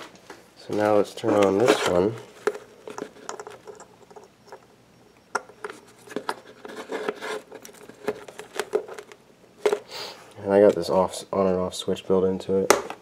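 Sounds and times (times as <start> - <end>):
wires handled with clicks and scrapes: 0.0 - 4.7, 5.5 - 11.0.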